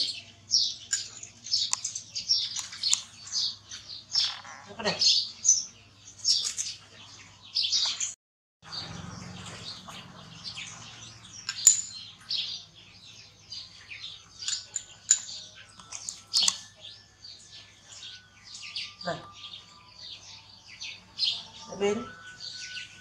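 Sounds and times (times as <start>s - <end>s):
high-pitched chirps and squeaks: 0.8s - 5.6s, 9.8s - 23.0s.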